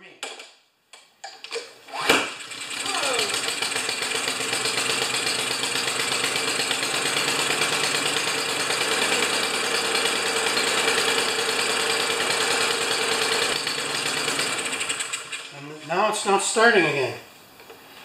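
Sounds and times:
lawn mower engine running: 2.3 - 15.5.

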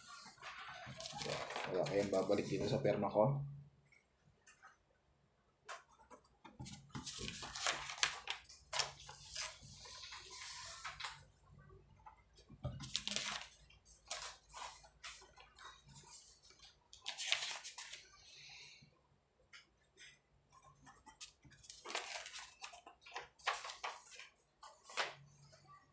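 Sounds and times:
paper pages rustling: 0.0 - 2.8, 6.6 - 11.3, 12.6 - 18.1, 20.8 - 25.3.

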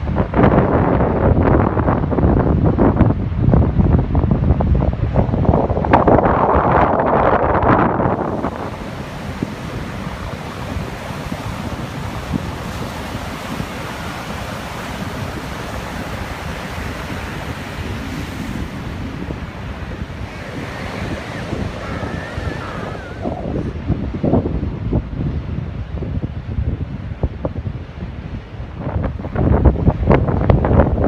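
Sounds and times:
wind rumbling on microphone: 0.0 - 31.0
surf breaking on sand: 4.5 - 25.4.

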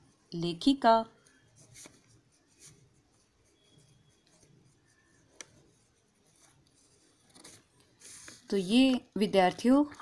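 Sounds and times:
ballpoint pen scratching paper: 1.3 - 8.5.

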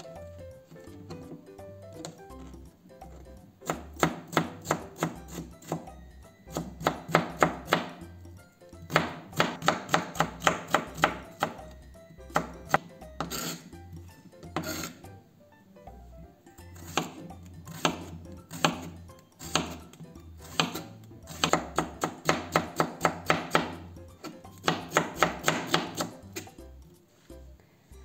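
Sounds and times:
knife chopping on plastic board: 0.7 - 5.9, 6.5 - 8.0, 8.9 - 13.7, 14.4 - 15.1, 16.8 - 26.6.

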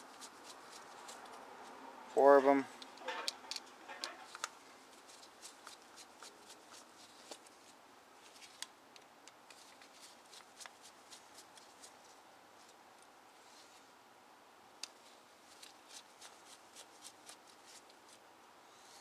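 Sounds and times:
metal part being handled: 2.8 - 4.5.

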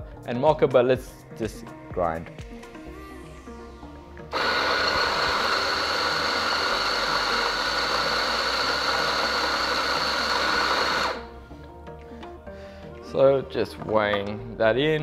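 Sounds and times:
electric coffee grinder running: 4.3 - 11.3.

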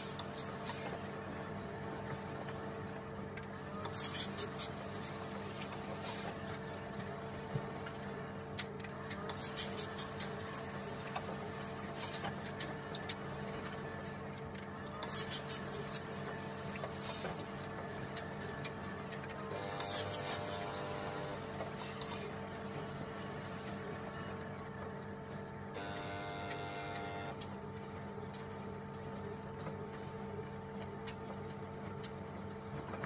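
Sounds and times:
steady low hum: 0.0 - 33.0
steam iron hissing: 19.8 - 22.3.

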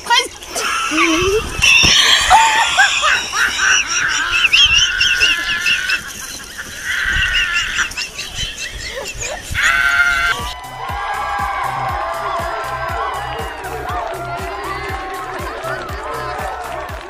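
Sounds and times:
women laughing shrilly: 0.8 - 10.6.

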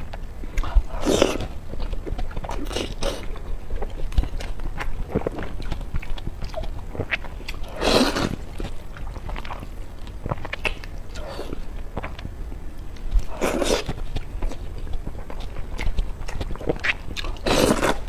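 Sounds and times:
wet chewing and lip smacks: 0.1 - 7.6, 8.3 - 11.2, 11.9 - 18.0
person slurping noodles: 7.7 - 8.4, 17.4 - 18.0.

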